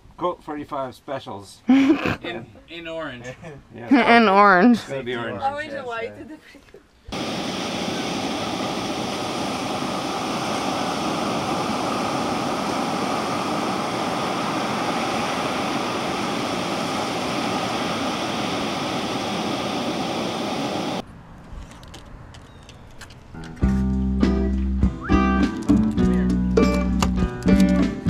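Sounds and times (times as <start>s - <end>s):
ocean surf breaking on beach: 7.1s - 21.0s.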